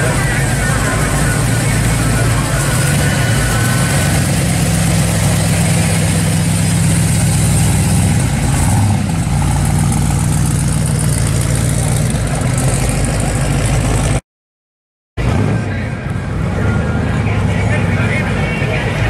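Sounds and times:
car engine idling: 0.0 - 14.2.

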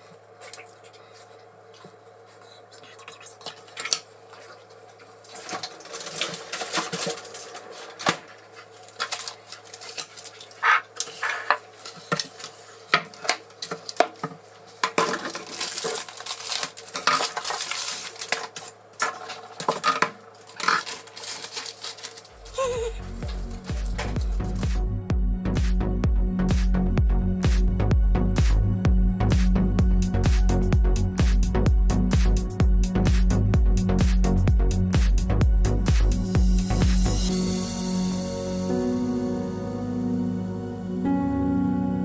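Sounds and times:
baking paper rustling: 4.4 - 24.6
music: 22.4 - 42.0.

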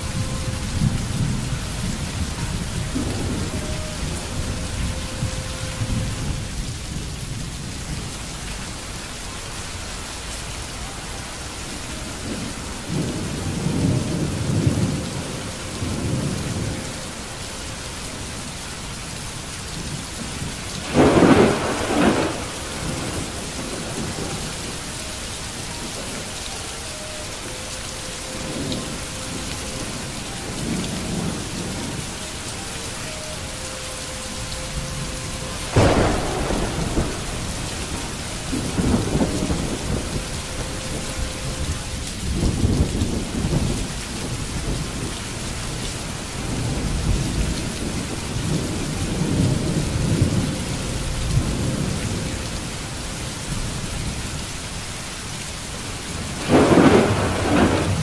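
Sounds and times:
low thunder rumbles: 0.0 - 9.1, 11.4 - 26.5, 34.3 - 54.8, 55.8 - 58.0
rain falling steadily: 0.0 - 58.0
sharp thunder crack: 20.8 - 24.4, 35.6 - 40.6, 56.4 - 58.0.

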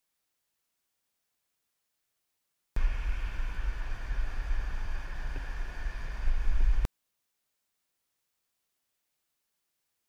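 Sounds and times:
wind buffeting microphone: 2.8 - 6.9.

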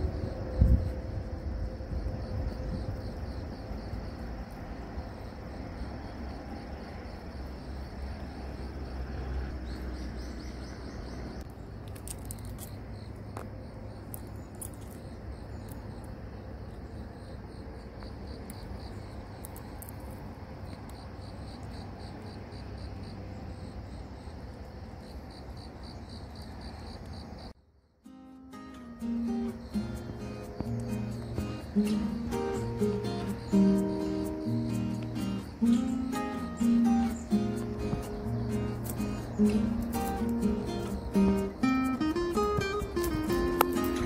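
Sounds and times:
low outdoor rumble: 0.0 - 26.0
insects chirping: 0.0 - 44.0
high ticks: 28.7 - 44.0.

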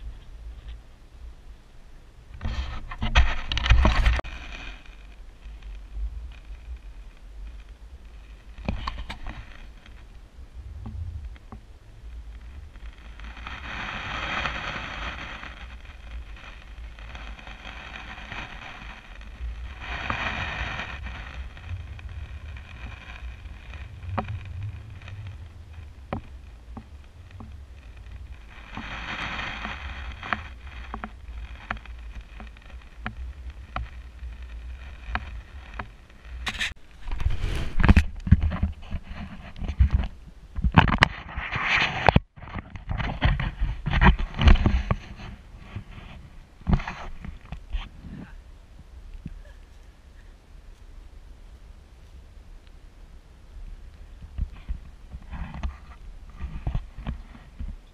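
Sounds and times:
wind rumbling on microphone: 0.0 - 57.9
faint clicks: 51.5 - 52.8.

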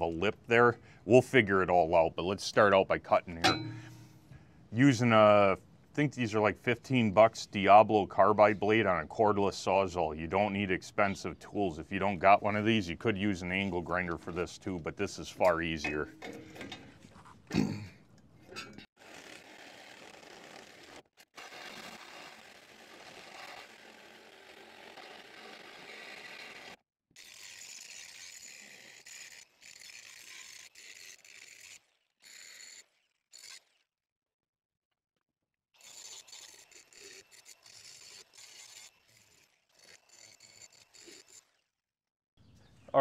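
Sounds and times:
reciprocating saw cutting steel: 2.7 - 4.4, 19.0 - 33.9, 35.8 - 41.8.

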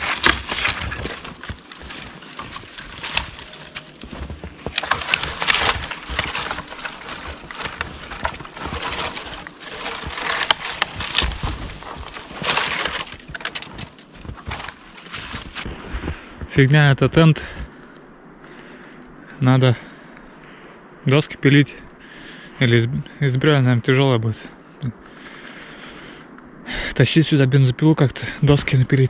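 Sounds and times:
dry branches crackling and snapping: 0.0 - 16.2
boots crunching in snow: 0.0 - 16.7.

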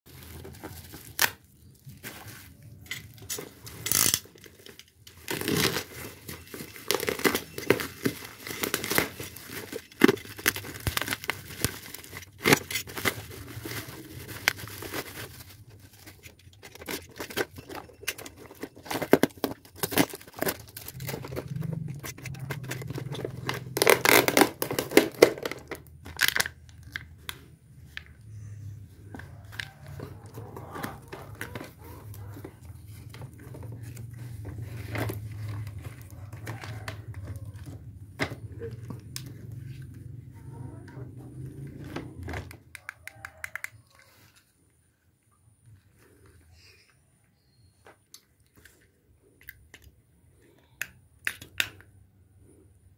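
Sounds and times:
plastic tearing: 0.1 - 27.4
plastic crinkling and rustling: 0.1 - 44.6.

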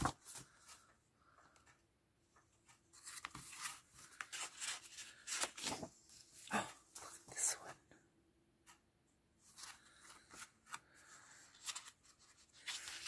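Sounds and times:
paper sheets rustling: 2.7 - 6.3, 9.4 - 13.0.

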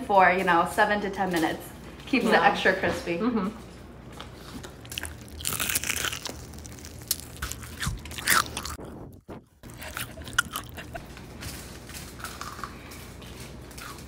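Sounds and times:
crunchy fried chicken chewing: 4.0 - 14.0.

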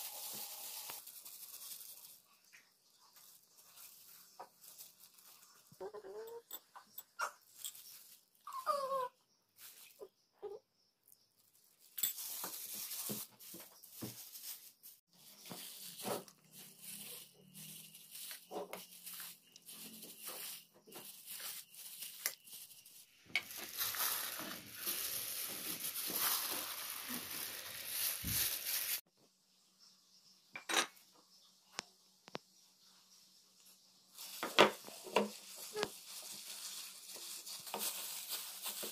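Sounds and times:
bowls and spoon clinking: 5.8 - 8.1, 12.0 - 12.6.

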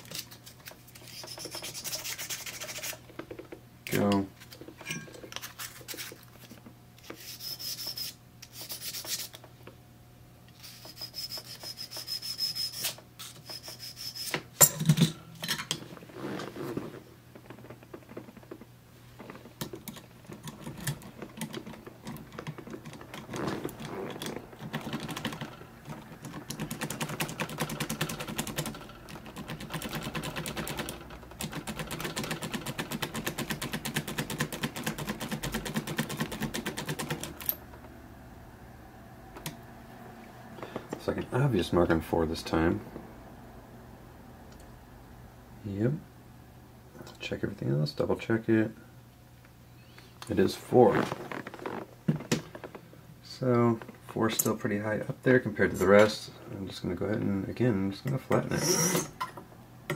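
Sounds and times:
key rubbed on abrasive paper: 1.0 - 3.0.

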